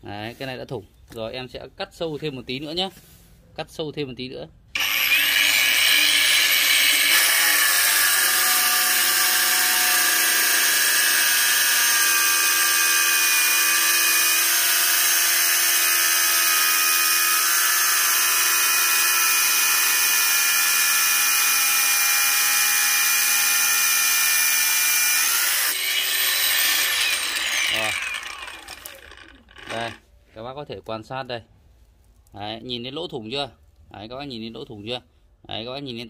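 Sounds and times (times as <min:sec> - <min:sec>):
angle grinder cutting steel: 0:04.8 - 0:30.0.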